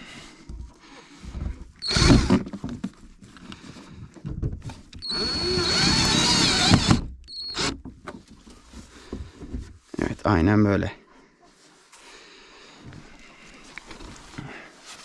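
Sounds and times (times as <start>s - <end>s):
electric drill whine: 1.8s - 2.4s, 5.0s - 7.8s.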